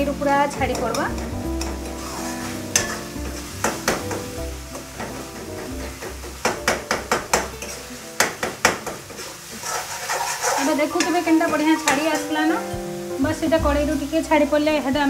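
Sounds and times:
background music: 0.0s - 15.0s
sizzling: 0.0s - 15.0s
metal spatula scraping metal pan: 0.5s - 6.1s, 9.0s - 12.7s.

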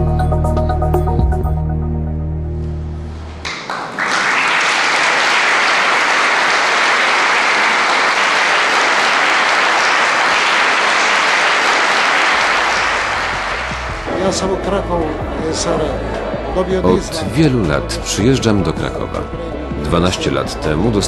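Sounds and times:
audience applauding: 3.4s - 14.7s.

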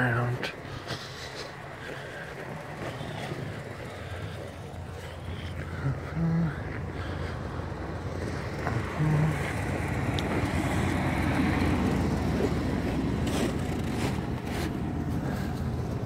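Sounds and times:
truck engine idling: 0.0s - 16.0s
footsteps crunching in snow: 11.6s - 15.7s.

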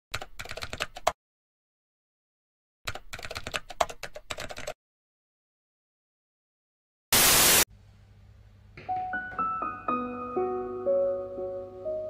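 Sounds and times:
keyboard typing: 0.1s - 1.2s, 2.9s - 4.8s.

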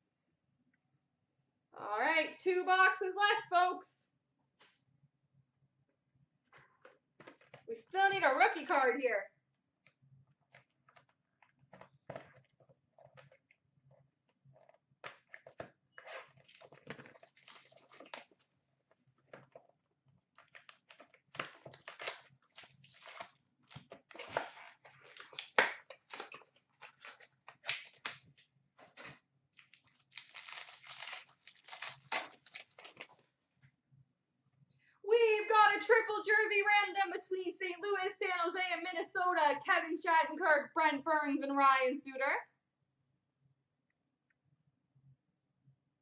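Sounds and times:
wrapping crinkling and rustling: 10.4s - 33.4s
cardboard box being torn open: 30.1s - 32.9s.

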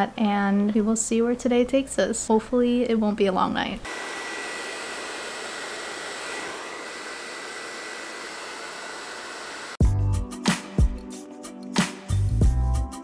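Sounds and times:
hair dryer blowing: 3.8s - 9.8s.

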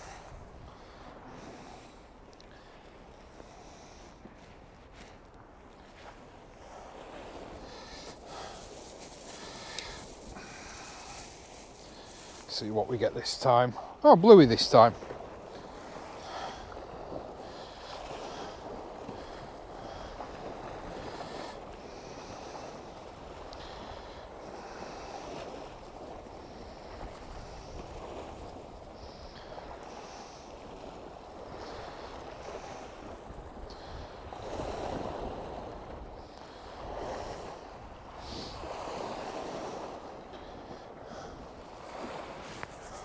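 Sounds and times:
waves washing at shore: 0.0s - 43.0s
wind: 0.0s - 43.0s.

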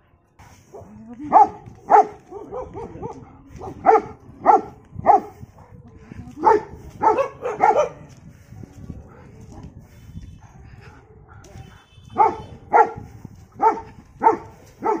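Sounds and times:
dog barking loudly: 0.7s - 5.3s, 6.4s - 8.1s, 11.8s - 15.0s.

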